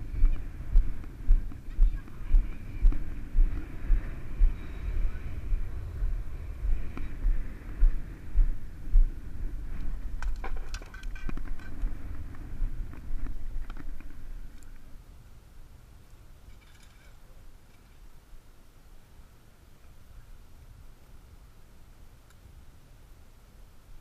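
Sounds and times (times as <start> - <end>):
wind buffeting microphone: 0.0 - 15.0.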